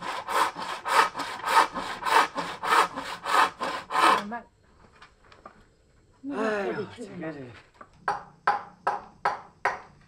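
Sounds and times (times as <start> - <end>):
hand saw cutting timber: 0.0 - 4.3.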